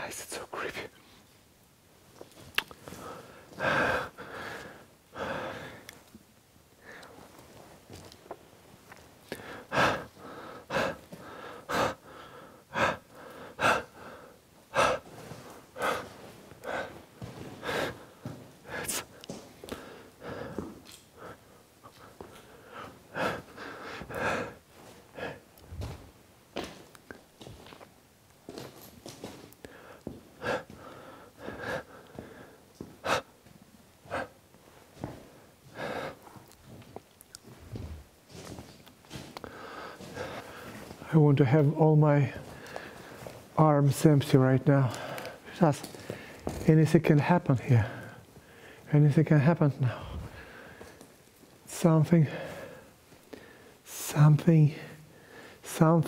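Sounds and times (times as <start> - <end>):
man breathing hard and fast: 2.8 - 6.0, 6.8 - 8.1, 9.2 - 26.7, 29.3 - 36.8, 37.5 - 41.2, 42.2 - 43.6, 44.8 - 46.6, 47.7 - 48.9, 49.8 - 51.2, 52.2 - 53.9, 54.7 - 55.7.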